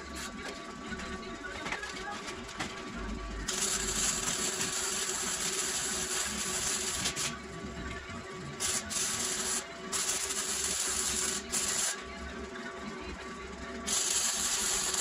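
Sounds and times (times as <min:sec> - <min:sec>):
arc welding hiss: 0:03.5 - 0:07.3, 0:08.6 - 0:12.0, 0:13.9 - 0:15.0.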